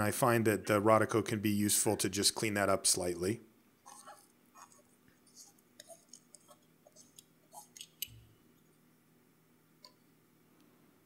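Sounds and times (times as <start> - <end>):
squeaks and rubs of watch case: 3.8 - 8.2.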